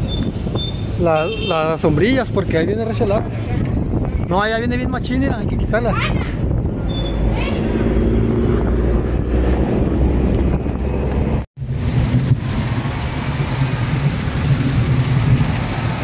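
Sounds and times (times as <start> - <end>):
wind buffeting microphone: 0.0 - 1.0, 1.8 - 16.0
heavy rain hissing: 11.6 - 16.0.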